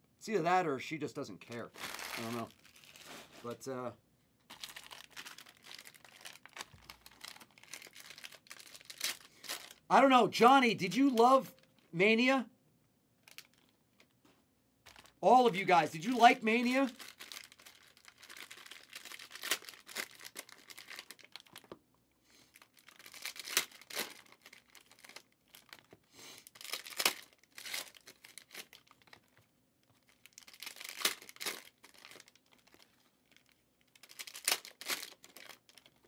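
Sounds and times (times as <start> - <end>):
cellophane tearing and crinkling: 1.6 - 3.6, 4.5 - 9.9, 13.2 - 14.1, 14.9 - 21.8, 22.4 - 36.0.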